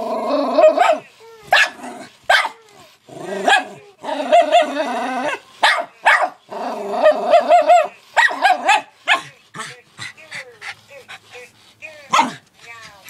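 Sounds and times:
dog barking: 0:00.7 - 0:02.6, 0:05.6 - 0:06.4, 0:07.3 - 0:09.3, 0:12.1 - 0:12.4.

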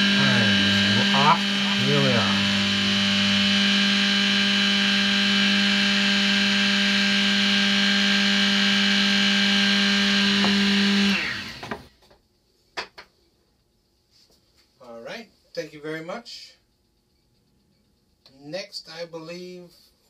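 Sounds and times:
end mill cutting plastic: 0:00.0 - 0:11.8
milling machine spindle motor humming: 0:00.0 - 0:11.8.

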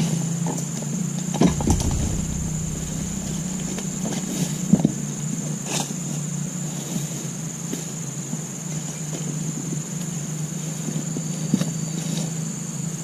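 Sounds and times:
low hum: 0:01.4 - 0:05.7.

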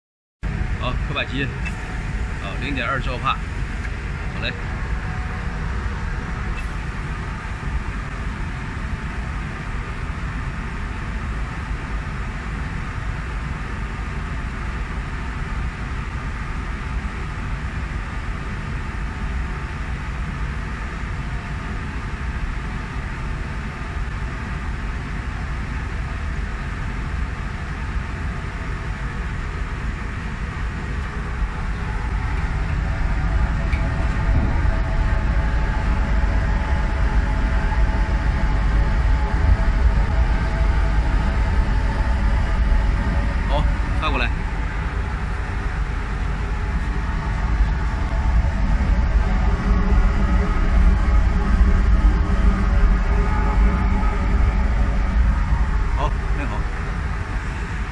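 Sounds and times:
faint steady tones: 0:00.5 - 0:57.9.

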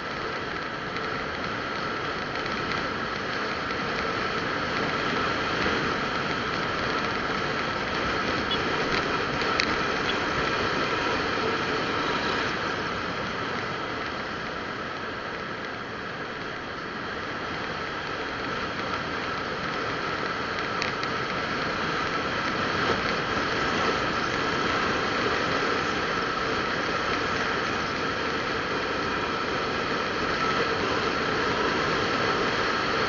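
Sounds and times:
constant whine: 0:00.0 - 0:33.0
vehicle road noise hiss: 0:00.0 - 0:33.0
faint ticks: 0:00.1 - 0:10.6, 0:18.8 - 0:21.4.

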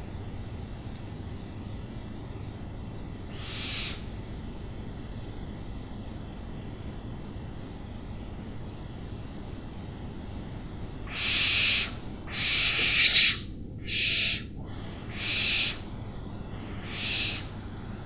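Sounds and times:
steady low rumble: 0:00.0 - 0:11.1, 0:14.5 - 0:18.0
owl screeching: 0:03.3 - 0:04.1, 0:11.0 - 0:15.9, 0:16.7 - 0:17.6.

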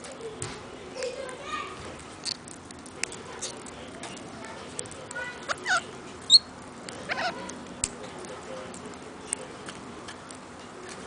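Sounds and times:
beaks clicking on seed: 0:02.0 - 0:11.0
high parrot chirp: 0:05.4 - 0:07.5
parrot calls: 0:05.4 - 0:07.5.

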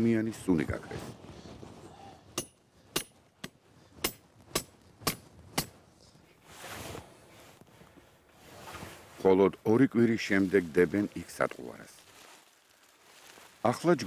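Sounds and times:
short rustle: 0:06.0 - 0:14.0.

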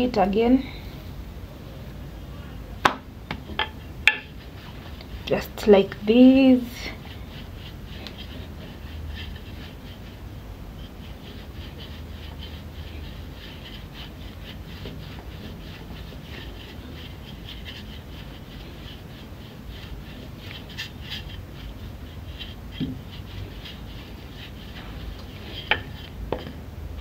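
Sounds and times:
rolling pin rubbing on dough: 0:03.4 - 0:27.0.

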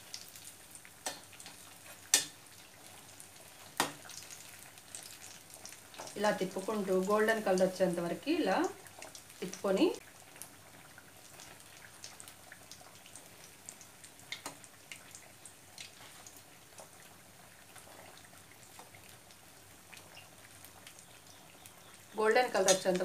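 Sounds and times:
oil crackling and popping: 0:00.0 - 0:23.0
spoon tapping pan: 0:01.0 - 0:02.4.

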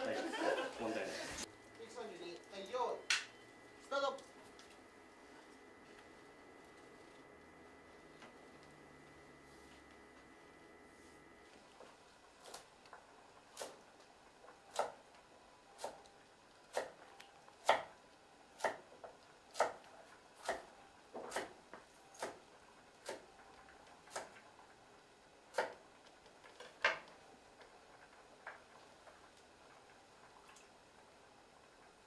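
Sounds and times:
knife chopping on cutting board: 0:14.7 - 0:15.0, 0:16.7 - 0:17.0, 0:17.6 - 0:17.9, 0:18.6 - 0:18.9, 0:19.5 - 0:19.8, 0:20.4 - 0:21.6.

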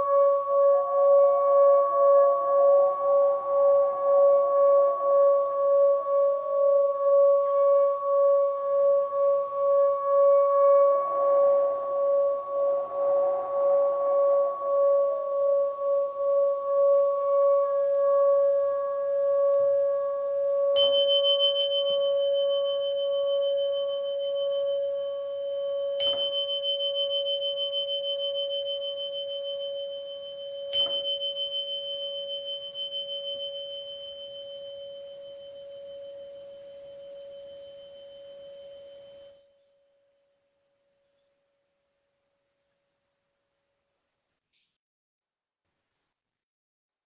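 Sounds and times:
singing bowl low tone: 0:00.0 - 0:39.9
sharp strikes with bell-like ring: 0:20.8 - 0:25.1, 0:25.8 - 0:39.4.

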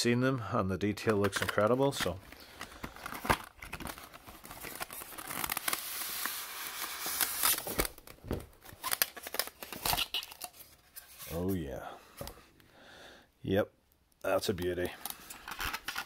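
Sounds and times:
packaging clicks and knocks: 0:01.0 - 0:04.9.

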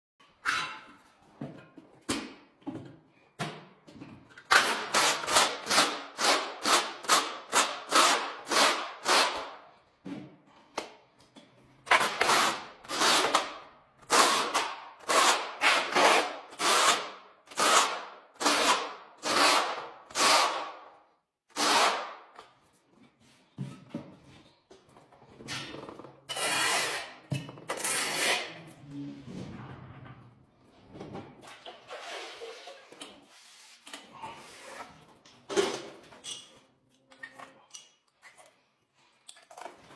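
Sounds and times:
trowel scraping wet adhesive: 0:26.3 - 0:27.2.

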